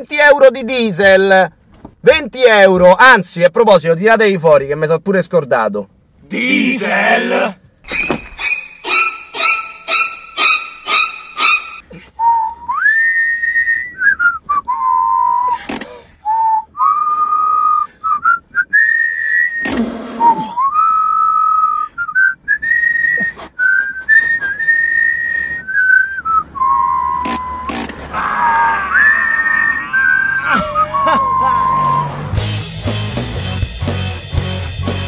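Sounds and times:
person whistling a slow tune: 12.2s - 15.6s, 16.2s - 27.7s, 29.5s - 32.1s.

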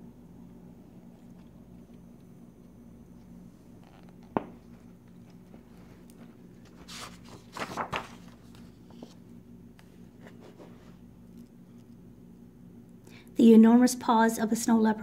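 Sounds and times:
faint steady hum: 0.0s - 15.0s
book pages turning: 3.2s - 11.9s.

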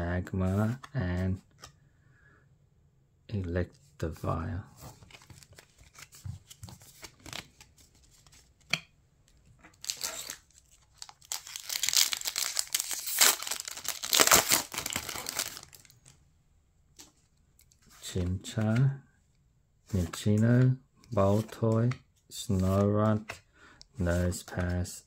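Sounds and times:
foil wrapper tearing and crinkling: 9.8s - 15.9s.

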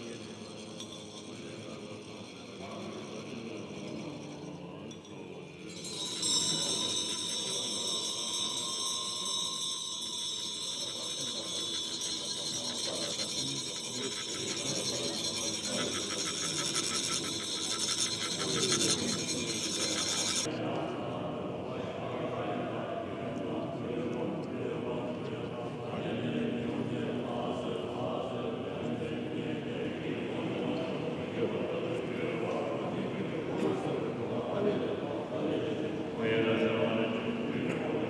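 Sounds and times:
rod rasping metal funnel: 9.9s - 20.5s.

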